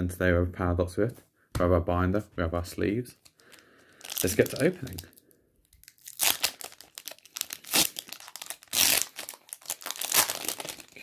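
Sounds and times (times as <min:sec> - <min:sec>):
foil wrapper tearing: 0:03.5 - 0:05.1, 0:05.8 - 0:11.0.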